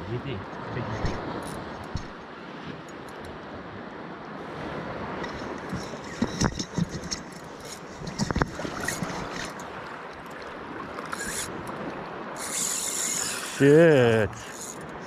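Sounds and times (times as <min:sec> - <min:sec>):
seawater sloshing and lapping: 0:05.0 - 0:13.8
sharp clicks and knocks: 0:05.7 - 0:07.4.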